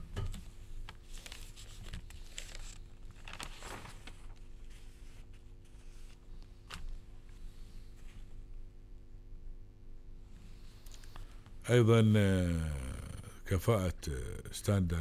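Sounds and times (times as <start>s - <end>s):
steady low hum: 0.0s - 15.0s
newspaper pages rustling: 0.9s - 7.0s.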